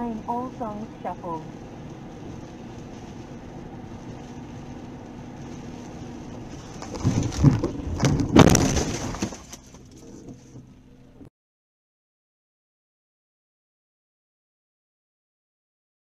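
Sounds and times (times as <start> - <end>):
car road noise: 0.0 - 11.3
car crash impacts: 6.5 - 10.7.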